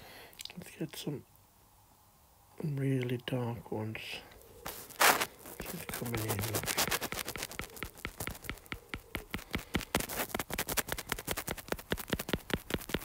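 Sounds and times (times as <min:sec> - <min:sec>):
stylus tapping on glass screen: 0:07.8 - 0:09.8.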